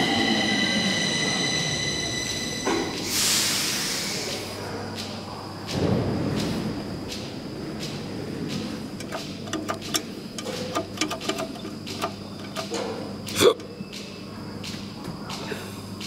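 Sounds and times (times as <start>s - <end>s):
steady high tone: 0.0s - 3.0s
elevator call button clicking: 9.0s - 14.1s.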